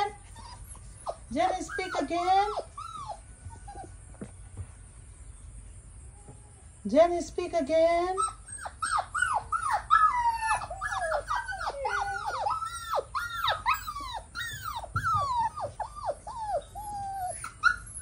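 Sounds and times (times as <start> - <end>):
puppy whining and crying: 0.0 - 4.2, 8.2 - 18.0.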